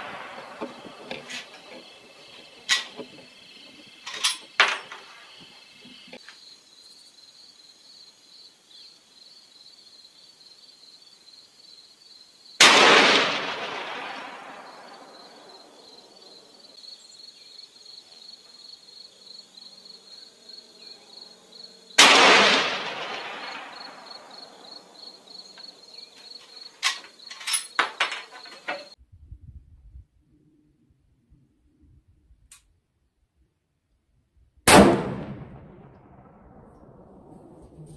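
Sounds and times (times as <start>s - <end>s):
rifle shots with long echo: 0.0s - 3.0s, 12.6s - 16.5s, 21.9s - 25.4s, 34.7s - 37.7s
insects chirping: 0.0s - 29.0s.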